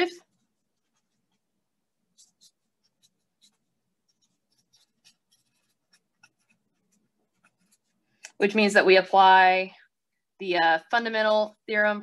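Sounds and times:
marker writing on paper: 0.2s - 1.5s, 2.1s - 8.2s.

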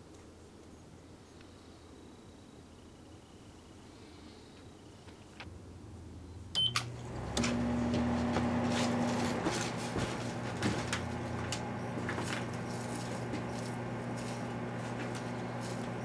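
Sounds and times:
microwave humming: 5.4s - 16.0s
clicks: 6.5s - 9.4s
keypad beep: 6.6s - 6.9s.

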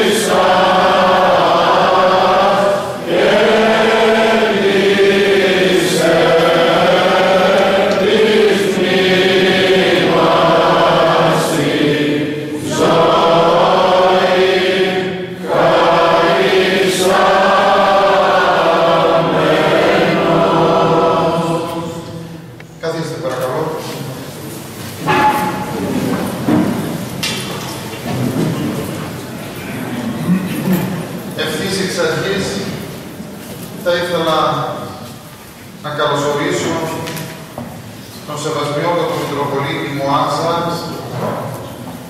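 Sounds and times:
voices chanting long held phrases: 0.0s - 23.2s.

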